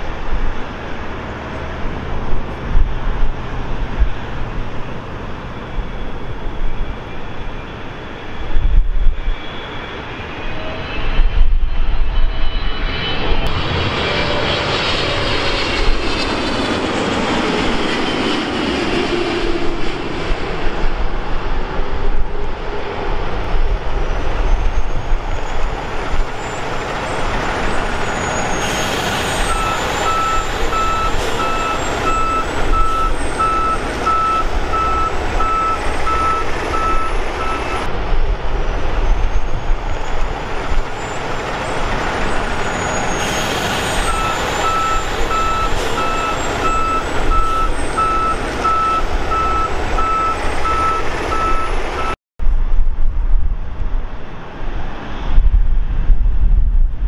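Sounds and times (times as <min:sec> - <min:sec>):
jet engines with turbine whine: 0:00.0 - 0:57.0
reversing alarm beeping: 0:28.1 - 0:37.9, 0:42.9 - 0:52.2.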